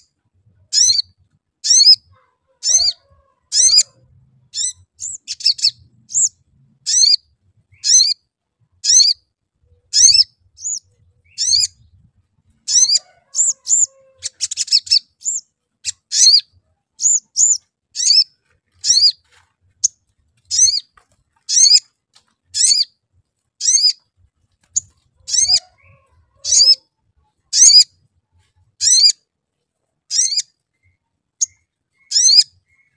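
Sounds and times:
sunbird chirping: 30.1 - 32.9.

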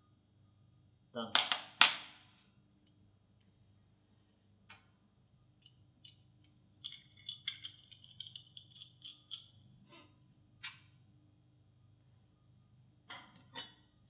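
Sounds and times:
small metal parts clinking: 5.6 - 9.6.

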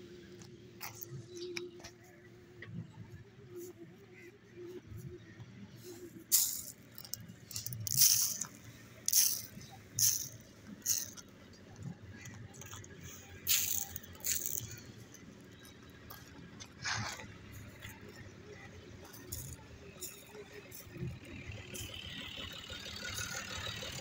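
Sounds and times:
stone chips scattering on road: 6.3 - 11.3, 13.4 - 14.9.

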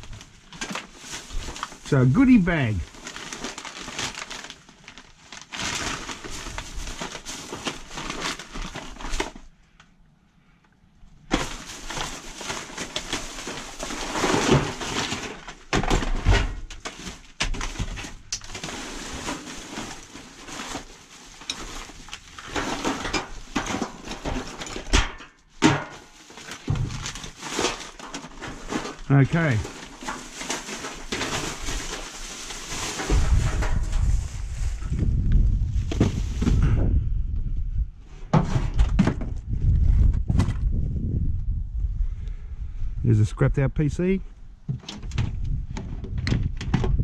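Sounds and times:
plastic and metal parts clattering: 0.0 - 2.0, 2.6 - 9.9, 11.2 - 34.2, 44.7 - 47.0
bag rustling: 0.0 - 9.5, 11.2 - 15.7, 16.3 - 24.8, 26.0 - 35.0, 35.7 - 36.8.

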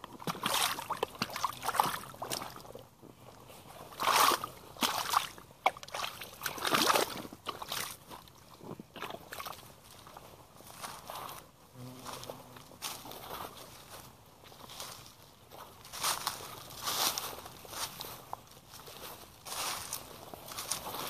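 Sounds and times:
footsteps squelching through mud: 0.0 - 21.0.

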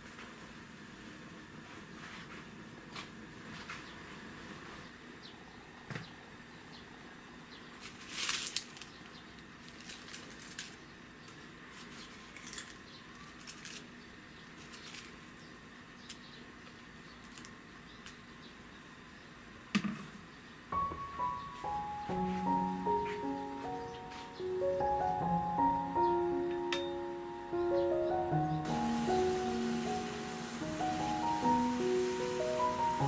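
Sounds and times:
leaves rustling and crinkling: 7.7 - 18.2, 21.5 - 25.2, 28.6 - 33.0.

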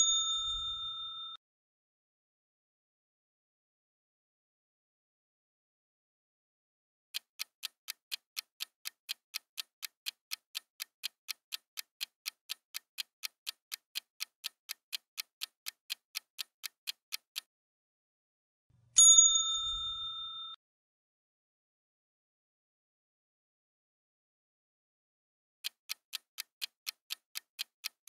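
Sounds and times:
bell ding: 0.0 - 1.4, 19.0 - 20.6
clock ticking: 7.2 - 17.5, 25.6 - 28.0.

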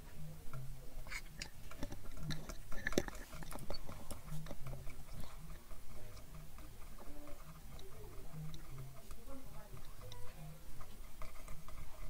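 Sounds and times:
low uneven hum: 0.0 - 12.0
screwdriver scraping shell: 1.1 - 6.3.

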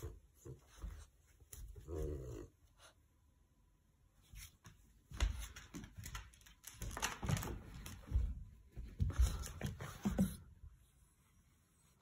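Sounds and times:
puppy paws on hardwood floor: 0.0 - 2.4, 4.2 - 11.0.

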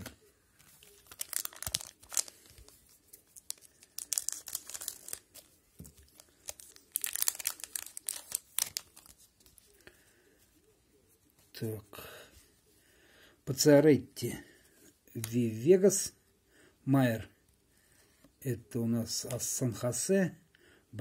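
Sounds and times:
wrapper tearing and crinkling: 0.9 - 9.6.

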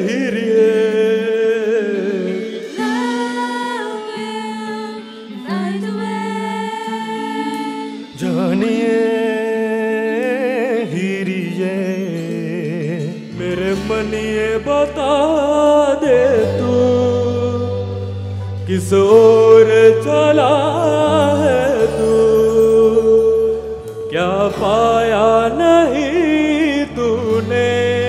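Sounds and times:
backing music: 0.0 - 28.0
person singing with vibrato: 0.0 - 28.0
low bass line: 13.3 - 28.0.

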